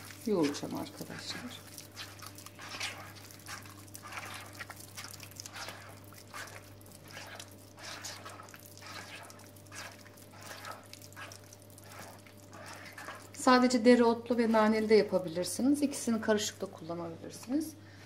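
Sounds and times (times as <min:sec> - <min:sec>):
hand squelching wet mixture: 0:00.0 - 0:17.7
steady low hum: 0:00.0 - 0:18.0.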